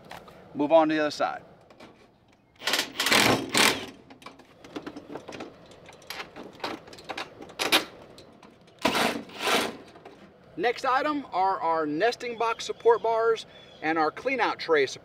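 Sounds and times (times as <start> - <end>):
cordless drill driving bolts into steel: 2.6 - 4.0, 8.8 - 9.8.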